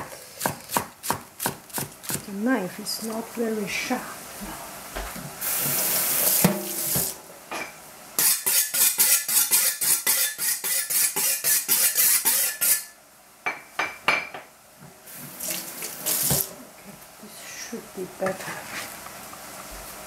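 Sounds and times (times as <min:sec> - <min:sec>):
tap water running: 0:05.0 - 0:07.2, 0:15.1 - 0:16.6.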